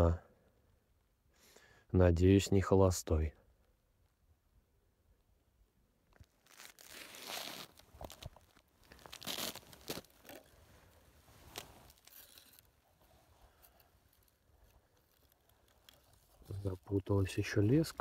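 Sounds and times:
clothing and gear rustling: 0:06.2 - 0:18.0.

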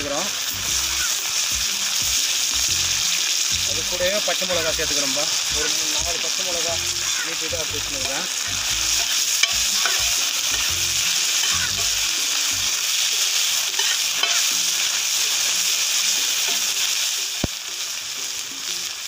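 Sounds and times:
onions sizzling in hot oil: 0:00.0 - 0:19.0
spatula scraping a pan: 0:04.9 - 0:17.0.

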